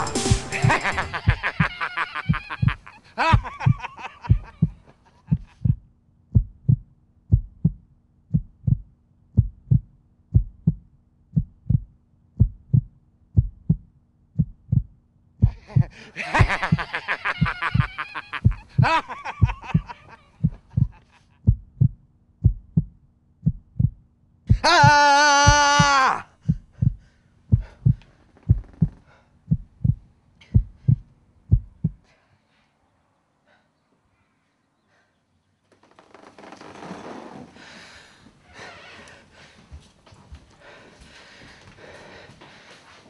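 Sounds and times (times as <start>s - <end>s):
heartbeat low thumps: 0.6s - 32.1s.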